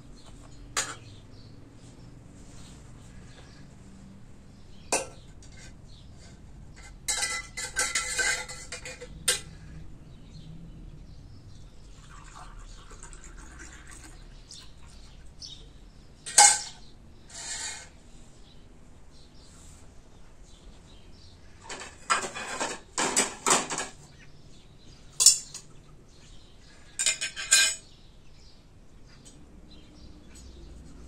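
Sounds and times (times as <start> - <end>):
tableware clattering and rustling: 0.2 - 1.2, 4.9 - 9.6, 16.2 - 18.0, 21.6 - 24.2, 25.1 - 25.8, 26.9 - 28.0
metal jug clinking: 7.1 - 9.4, 16.3 - 16.8
liquid pouring into a glass: 12.0 - 14.4
sharp clink of tableware: 16.3 - 16.8.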